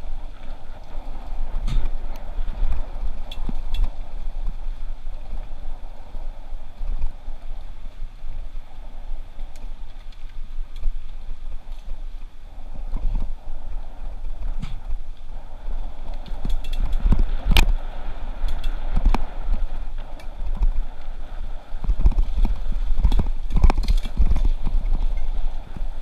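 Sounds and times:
bike tyres rumbling on dirt: 0:00.0 - 0:26.0
wind noise: 0:00.0 - 0:26.0
bike rattles and clunks: 0:01.0 - 0:04.6, 0:16.2 - 0:17.8, 0:21.8 - 0:26.0.

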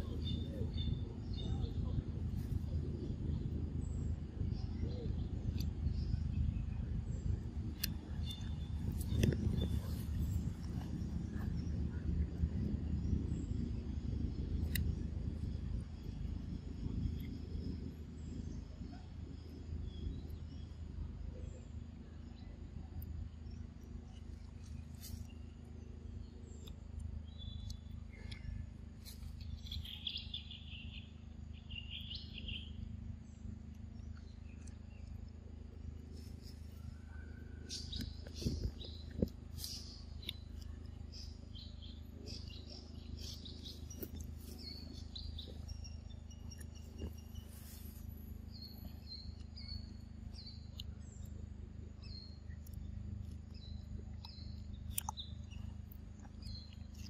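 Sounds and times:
birds chirping: 0:00.0 - 0:57.0
steady low hum: 0:00.0 - 0:57.0
steady low rumble: 0:00.0 - 0:57.0
insects chirping: 0:14.8 - 0:57.0.

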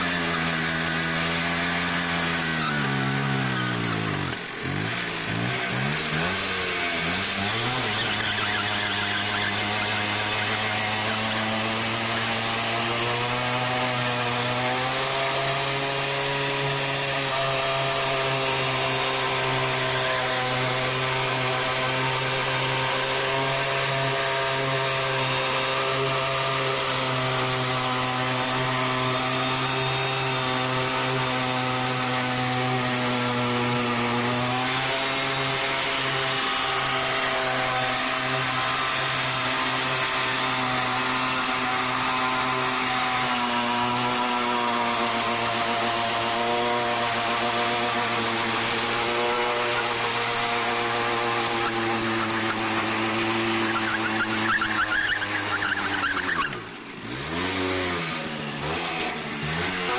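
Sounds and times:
two-stroke moped engine revving: 0:00.0 - 0:59.9.

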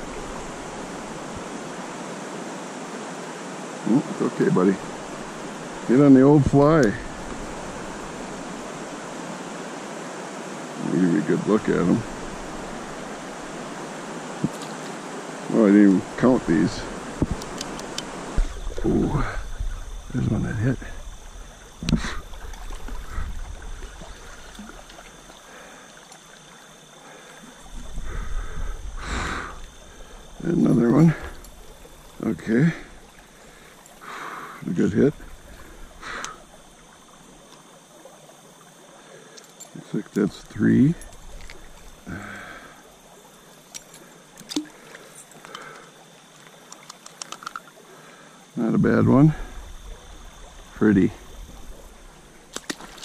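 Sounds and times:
small stream running: 0:00.0 - 0:53.0
light clicks: 0:17.2 - 0:18.1, 0:43.7 - 0:47.7.

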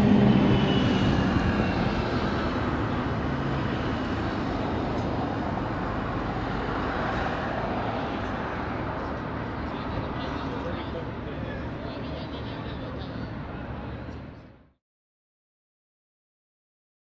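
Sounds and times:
passing vehicle engine: 0:00.0 - 0:09.6
steady hum of traffic: 0:00.0 - 0:14.8.

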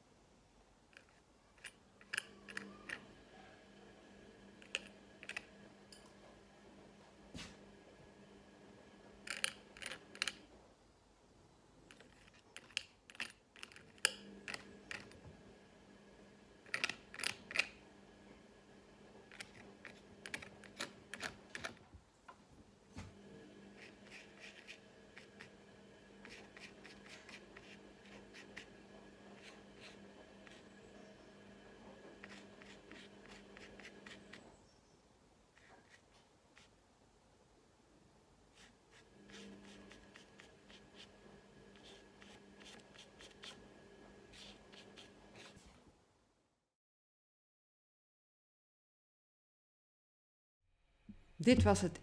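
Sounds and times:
faint steady hum: 0:00.0 - 0:46.5
brush scratching on canvas: 0:23.7 - 0:25.5, 0:26.2 - 0:28.8, 0:29.4 - 0:30.7, 0:32.2 - 0:34.5, 0:35.6 - 0:36.8, 0:38.5 - 0:43.6, 0:44.3 - 0:45.8.

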